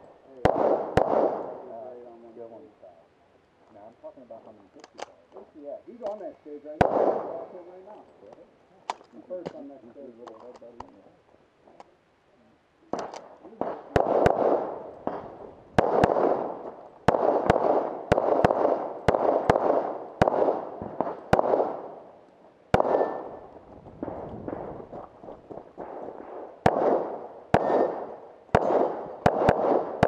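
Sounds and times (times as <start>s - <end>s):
pistol shots echoing: 0.4s - 1.7s, 6.8s - 7.4s, 12.9s - 24.7s, 25.5s - 30.0s.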